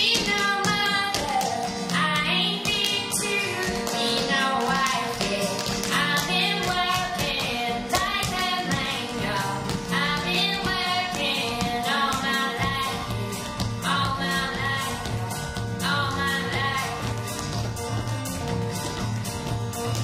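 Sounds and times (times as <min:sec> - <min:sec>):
singing over a steady beat: 0:00.0 - 0:17.2.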